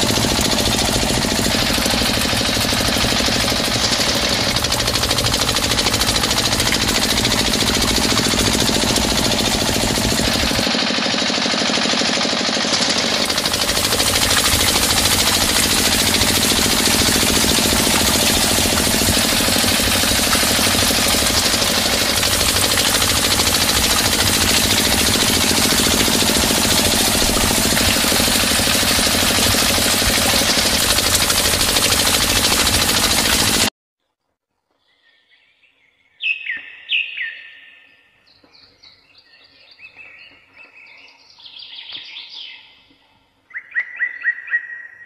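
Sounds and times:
small water pump motor rattling: 0:00.0 - 0:33.7
water pouring from pipe: 0:00.0 - 0:33.7.

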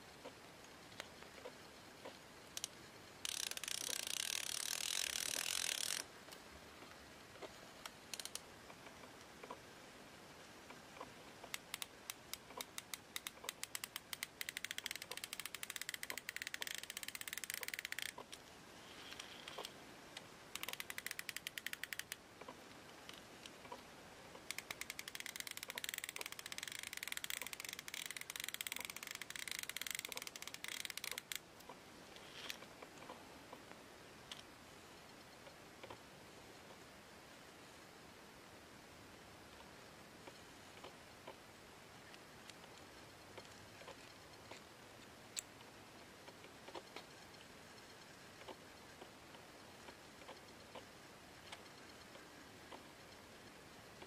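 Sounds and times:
fishing reel rapid clicks: 0:02.6 - 0:06.1, 0:08.1 - 0:08.4, 0:11.5 - 0:18.2, 0:20.5 - 0:22.2, 0:24.5 - 0:31.4.

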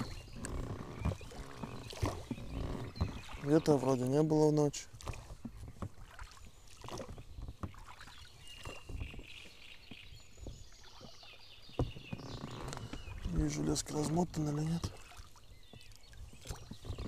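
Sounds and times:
oars knocking in oarlocks: 0:00.0 - 0:04.1, 0:04.9 - 0:14.4, 0:15.7 - 0:17.0
oars dipping in water: 0:00.0 - 0:17.0.

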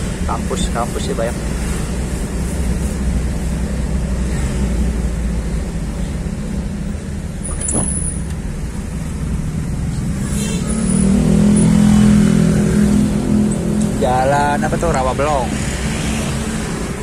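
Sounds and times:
road noise: 0:00.0 - 0:17.0
vehicle engine running: 0:00.0 - 0:17.0.

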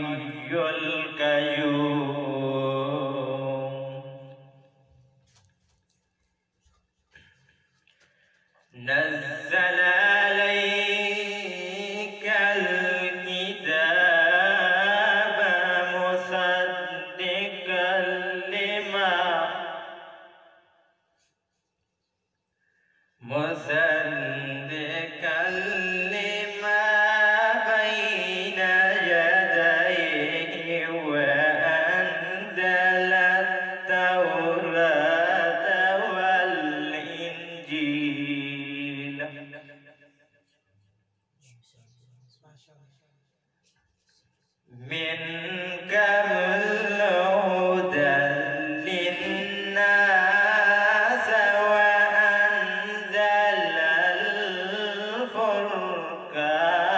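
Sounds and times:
man reciting melodically: 0:00.0 - 0:04.3, 0:08.6 - 0:19.7, 0:23.2 - 0:39.8, 0:40.8 - 0:56.9.

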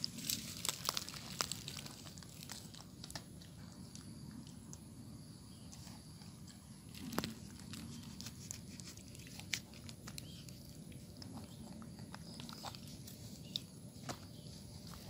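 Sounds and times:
monkey chewing and smacking: 0:05.8 - 0:13.8.

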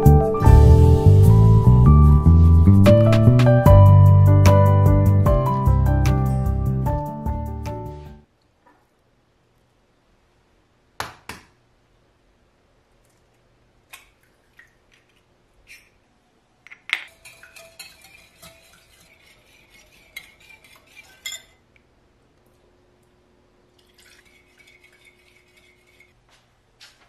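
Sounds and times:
whisk clinking in glass bowl: 0:17.1 - 0:21.6.

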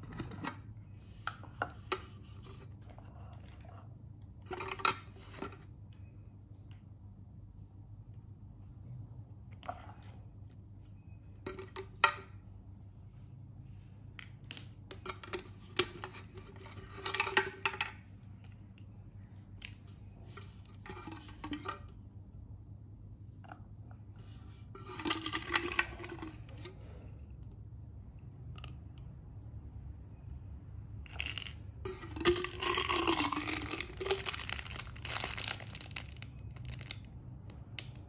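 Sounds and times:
plastic parts clattering on a table: 0:31.1 - 0:36.9.

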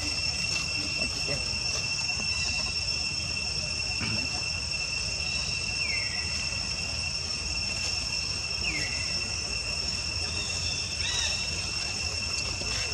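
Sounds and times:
high-pitched insect drone: 0:00.0 - 0:12.9.

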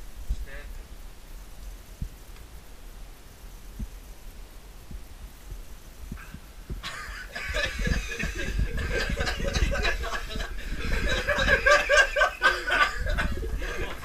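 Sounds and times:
men chuckling and snickering: 0:06.8 - 0:14.0.

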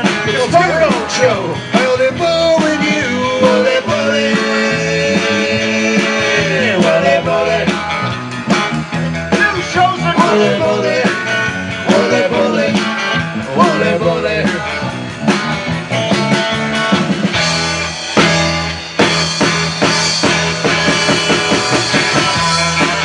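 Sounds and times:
electric guitar bending notes: 0:00.0 - 0:23.0
rock band playing: 0:00.0 - 0:23.0.

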